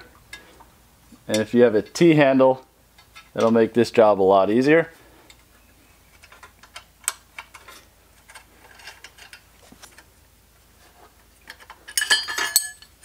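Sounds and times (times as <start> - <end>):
metallic clinks ringing: 11.9 - 13.0.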